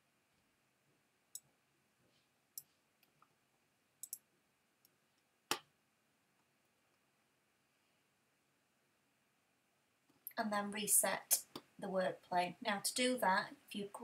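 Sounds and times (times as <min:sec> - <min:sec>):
computer mouse clicking: 0:04.0 - 0:04.2.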